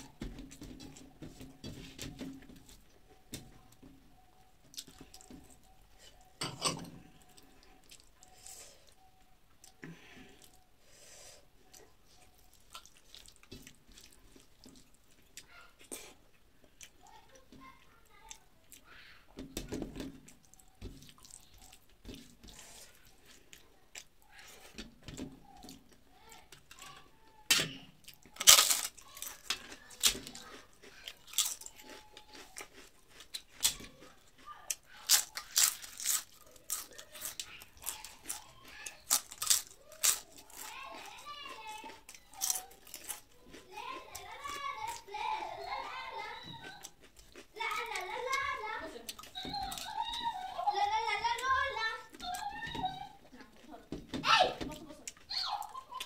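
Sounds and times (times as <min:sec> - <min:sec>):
chewing: 0:00.0 - 0:10.9, 0:11.5 - 0:19.3, 0:19.9 - 0:53.9, 0:54.7 - 0:56.0
crunching fried papad: 0:11.6 - 0:53.7
mixing food by hand on steel plate: 0:18.8 - 0:39.0.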